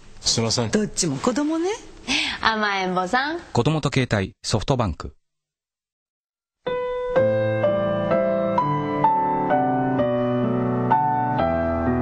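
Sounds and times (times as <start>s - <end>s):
gentle piano melody: 6.6s - 12.0s.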